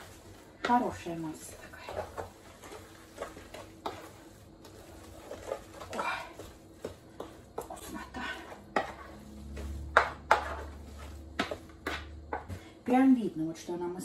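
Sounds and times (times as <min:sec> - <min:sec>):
wooden spatula scraping paste: 0:00.0 - 0:12.7
spatula knocking metal bowl: 0:08.7 - 0:12.5.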